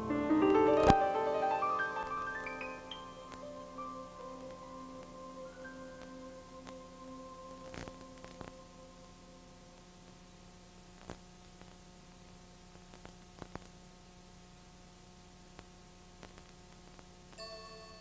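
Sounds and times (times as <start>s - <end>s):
held music notes: 0.0s - 9.6s
faint hiss: 0.0s - 18.0s.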